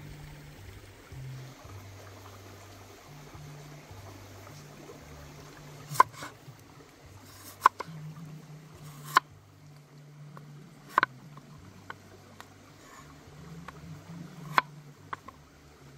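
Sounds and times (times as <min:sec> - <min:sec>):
knife slicing potato on wooden board: 0:07.3 - 0:07.8, 0:08.9 - 0:09.2.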